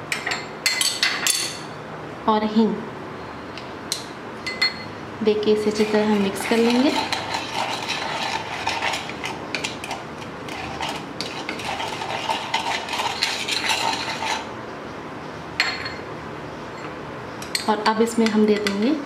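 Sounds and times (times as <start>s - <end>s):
spoon scraping plastic bowl: 5.7s - 14.5s.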